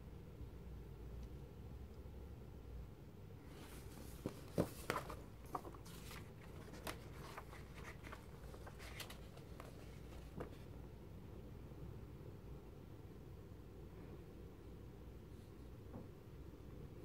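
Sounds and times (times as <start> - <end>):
magazine pages rustling: 3.5 - 10.7.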